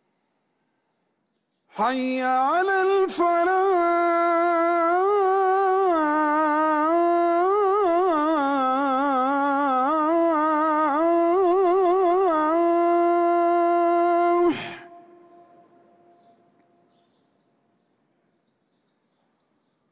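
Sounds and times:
man chanting call to prayer: 0:01.7 - 0:16.4.

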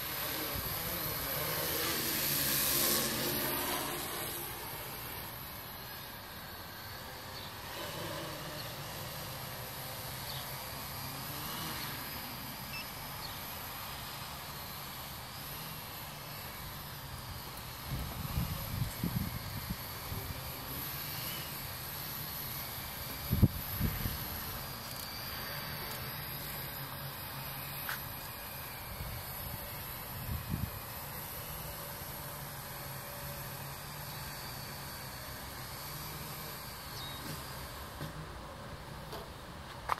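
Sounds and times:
drone propellers buzzing: 0:00.0 - 0:39.9.

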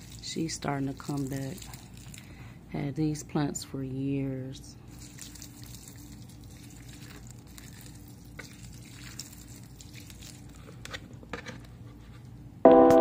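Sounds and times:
water pouring onto soil: 0:00.0 - 0:02.2, 0:04.9 - 0:10.5
low steady hum: 0:00.0 - 0:13.0
soil crackling and ticking: 0:04.9 - 0:10.6.

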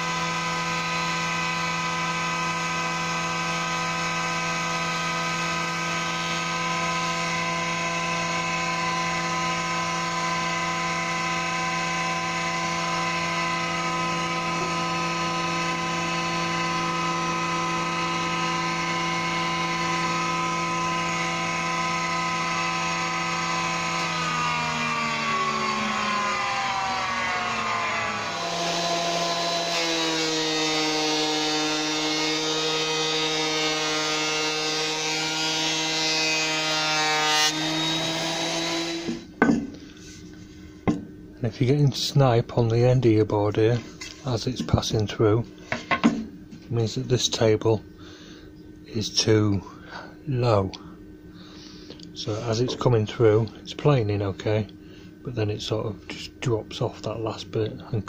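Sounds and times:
electric planer motor humming: 0:00.0 - 0:39.3.

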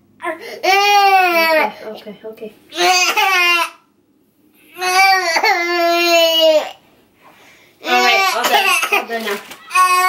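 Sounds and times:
toddler crying: 0:09.6 - 0:10.0.

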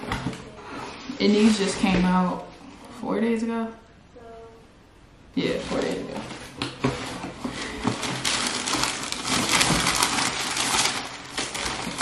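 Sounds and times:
paper crinkling and rustling: 0:05.6 - 0:12.0.

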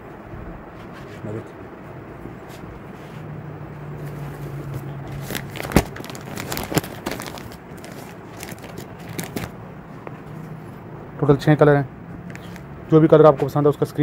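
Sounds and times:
plastic packaging crinkling: 0:05.0 - 0:09.6.

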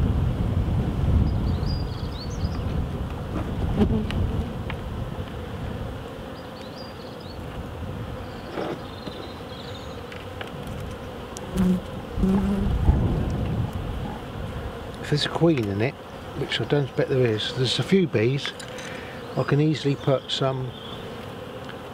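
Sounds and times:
honeybees buzzing: 0:00.0 - 0:21.9
hive tool scraping wax comb: 0:10.0 - 0:12.7, 0:14.4 - 0:21.9.

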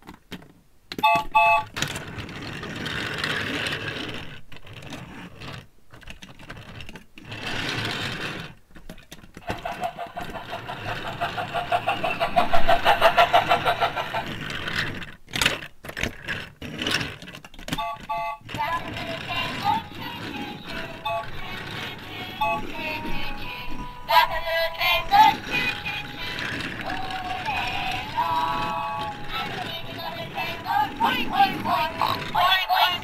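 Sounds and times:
plastic toy train wheels rolling: 0:00.0 - 0:33.0
fast mechanical rattle: 0:09.4 - 0:17.6, 0:23.5 - 0:33.0.

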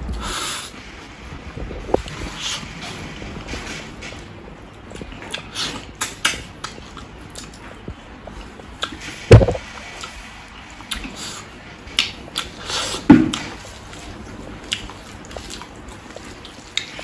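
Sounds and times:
chewing and mouth clicks: 0:04.8 - 0:09.1, 0:09.9 - 0:17.0
loud dull thump: 0:09.3 - 0:09.6.

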